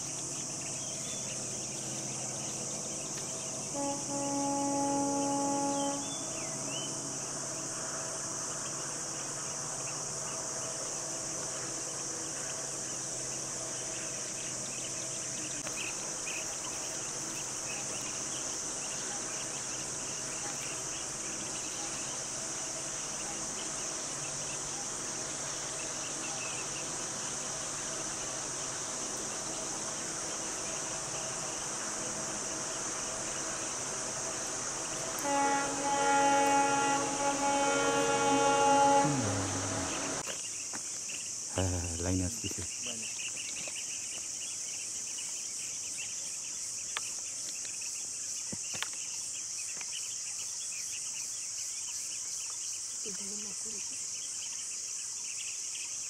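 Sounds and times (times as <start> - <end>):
insects droning: 0.0 - 56.0.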